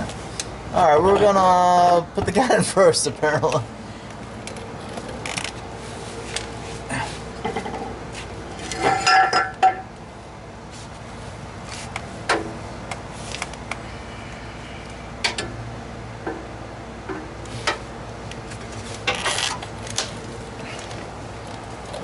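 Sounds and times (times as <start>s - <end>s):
metal pipe clanking: 8.6s - 9.9s.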